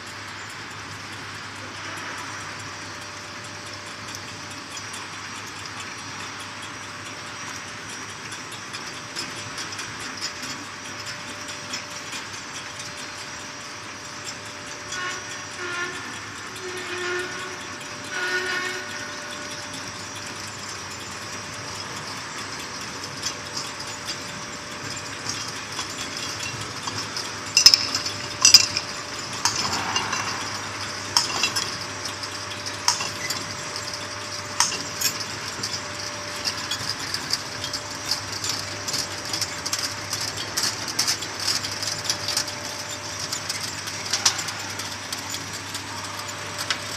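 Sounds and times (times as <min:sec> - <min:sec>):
bottling machinery hum and hiss: 0:00.0 - 0:46.9
glass bottles clinking: 0:25.3 - 0:31.8, 0:32.6 - 0:34.0.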